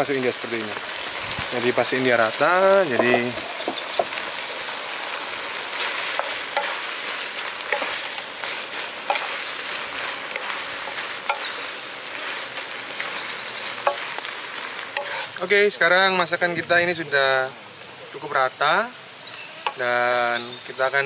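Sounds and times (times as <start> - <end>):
food sizzling in frying pan: 0.0 - 21.0
spatula scraping pan: 5.8 - 12.9, 15.0 - 15.4.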